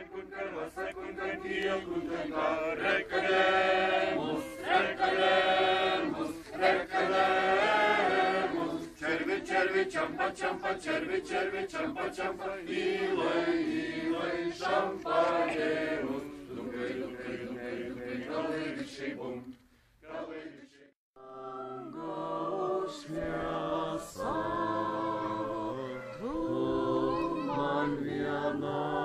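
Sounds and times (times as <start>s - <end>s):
group singing without instruments: 0.0s - 29.0s.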